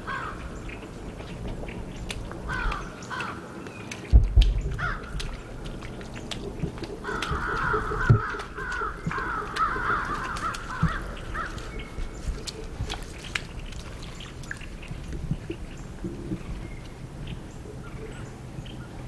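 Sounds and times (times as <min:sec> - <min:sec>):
crows cawing: 0:00.0 - 0:00.6, 0:02.4 - 0:03.6, 0:04.7 - 0:05.8, 0:06.8 - 0:12.2
light crackles: 0:00.4 - 0:17.8
dull thumps: 0:04.1 - 0:05.3.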